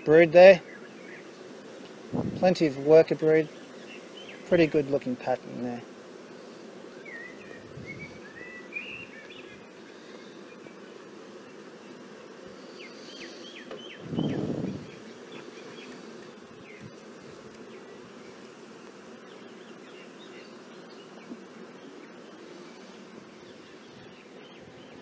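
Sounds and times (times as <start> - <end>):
bees buzzing: 0.0 - 25.0.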